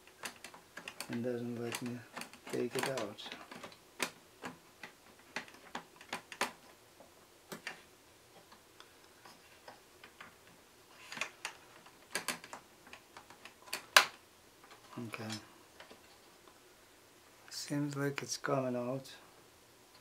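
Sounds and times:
light clicks and taps: 0.1 - 7.8.

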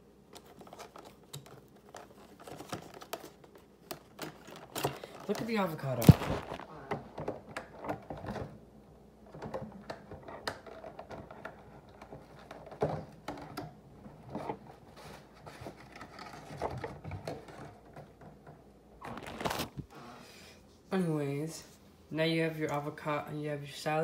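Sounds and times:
packaging clicks and rustles: 0.3 - 8.5, 19.0 - 19.9.

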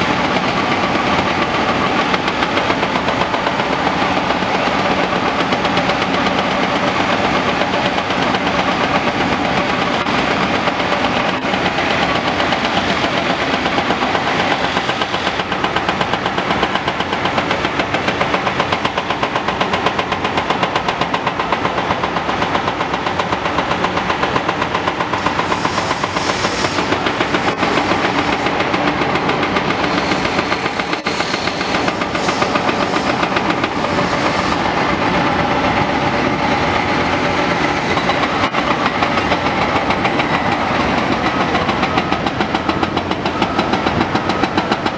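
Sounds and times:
excavator engine running: 0.0 - 44.9
hydraulic breaker pounding concrete: 0.0 - 44.9.

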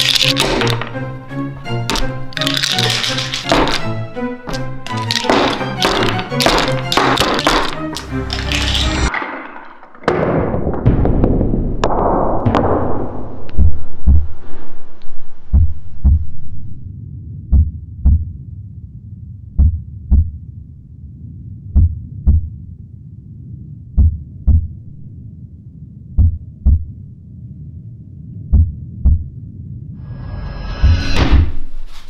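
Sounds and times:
low steady hum: 13.2 - 30.0
heartbeat thumps: 13.5 - 14.4, 15.4 - 16.5, 17.4 - 18.4, 19.5 - 20.4, 21.7 - 22.6, 23.9 - 24.8, 26.1 - 27.0, 28.4 - 29.4.

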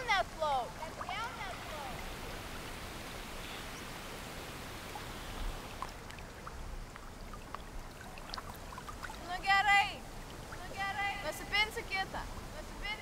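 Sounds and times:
outdoor ambient hiss by water: 0.0 - 13.0.

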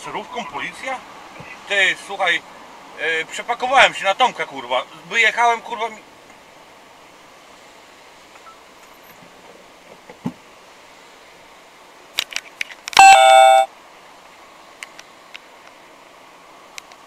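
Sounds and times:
car horn honk: 13.0 - 13.7.

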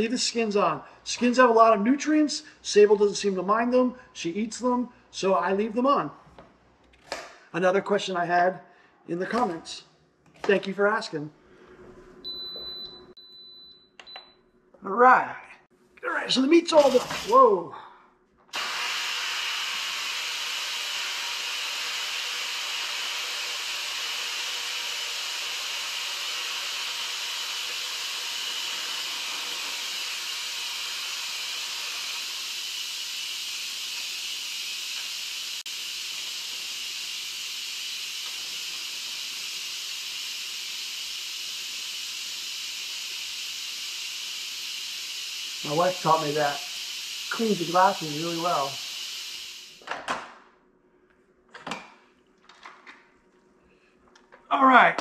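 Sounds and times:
pressure cooker steam hissing: 18.5 - 49.8.

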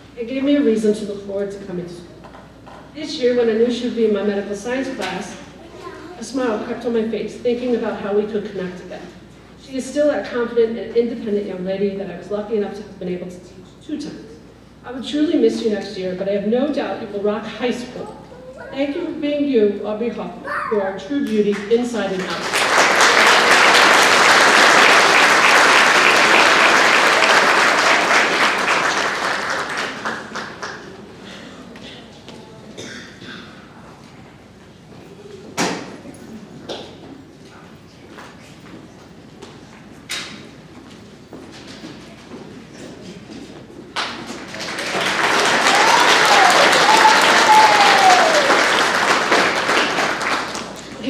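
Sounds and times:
audience applauding: 22.2 - 31.1, 44.0 - 51.0.

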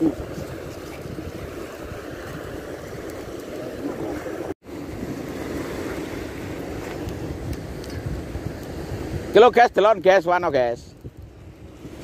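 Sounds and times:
surf washing over rocks: 0.0 - 12.0
wind buffeting microphone: 0.0 - 12.0.

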